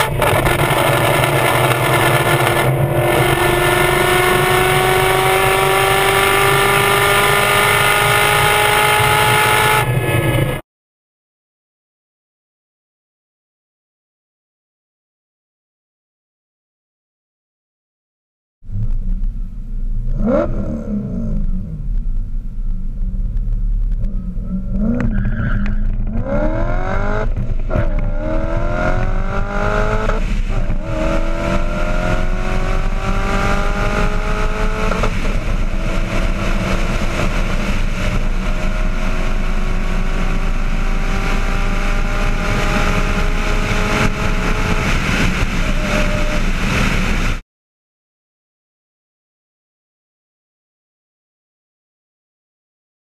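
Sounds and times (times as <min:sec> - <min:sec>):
car engine accelerating through gears: 0:00.0 - 0:10.6, 0:18.7 - 0:47.4
wind and tyre noise: 0:00.0 - 0:10.6, 0:18.6 - 0:47.4.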